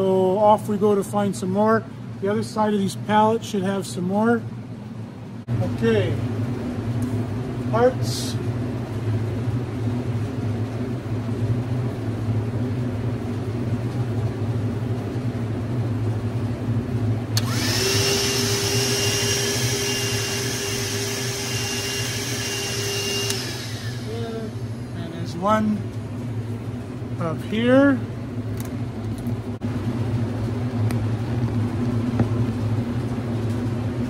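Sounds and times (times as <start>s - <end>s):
steady low hum: 0.0s - 34.0s
hand vacuum whining: 17.4s - 24.5s.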